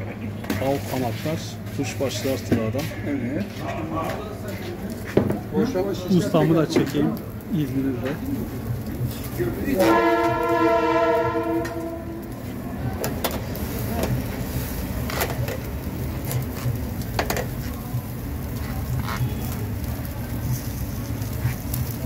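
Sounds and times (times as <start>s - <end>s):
loud horn-like tone: 9.8s - 12.3s.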